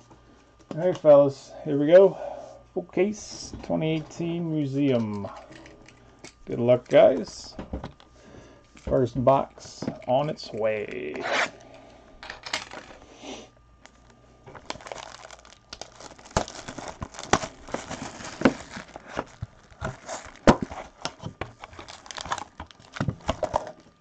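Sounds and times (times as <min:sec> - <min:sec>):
cellophane tearing and crinkling: 0:13.8 - 0:24.0.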